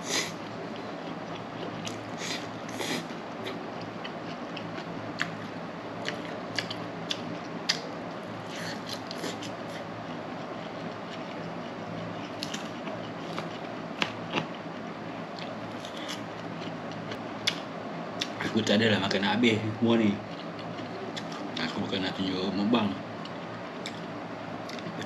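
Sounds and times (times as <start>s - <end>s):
person chewing: 0.0s - 14.6s, 15.3s - 17.6s, 20.2s - 21.7s
steady low hum: 0.0s - 25.0s.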